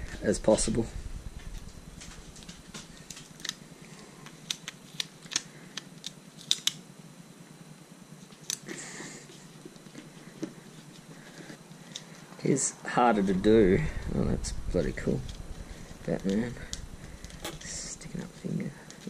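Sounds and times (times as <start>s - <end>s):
stickers clicking and crinkling: 1.4s - 3.6s, 4.2s - 6.8s.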